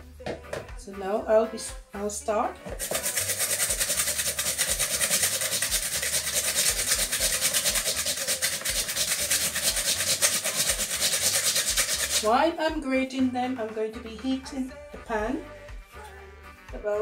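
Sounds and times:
potato grated on metal grater: 2.7 - 12.4.

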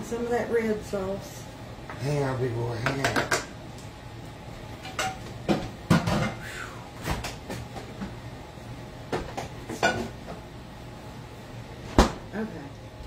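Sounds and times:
cookware and utensils knocking: 2.8 - 3.5, 4.8 - 6.4, 9.2 - 10.1.

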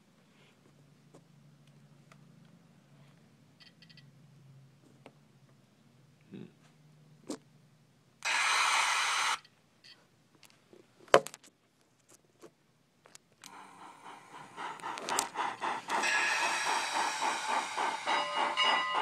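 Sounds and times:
loud steam hiss: 8.2 - 9.4, 13.5 - 19.0
steam exhaust chuffing: 8.2 - 9.4, 13.5 - 19.0.

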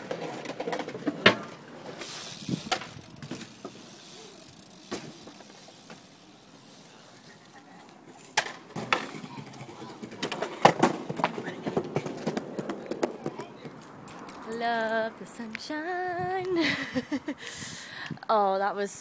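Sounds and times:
bike clattering on ground: 0.0 - 6.3
bike riding over stone paving: 0.0 - 13.8.

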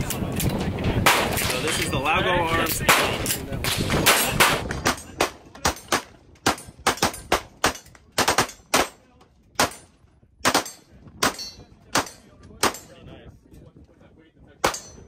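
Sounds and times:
pistol shots: 2.9 - 9.0, 9.6 - 12.9.

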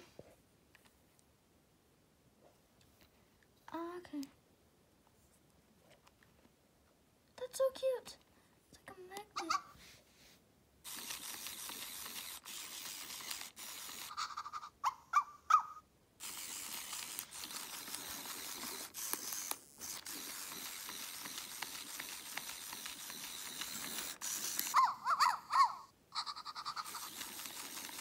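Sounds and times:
toy motor whirring: 10.8 - 28.0
toy chirps: 10.9 - 28.0.

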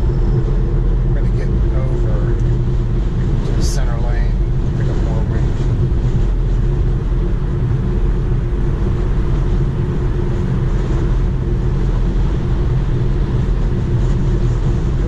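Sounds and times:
gusty wind noise: 0.0 - 15.0.

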